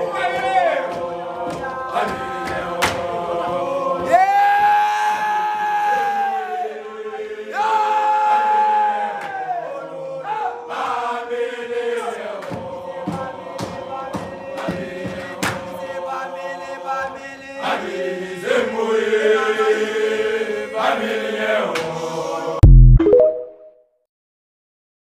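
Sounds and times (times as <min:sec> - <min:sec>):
men chanting a cappella: 0:00.0 - 0:22.6
electronic outro sting: 0:22.6 - 0:23.7.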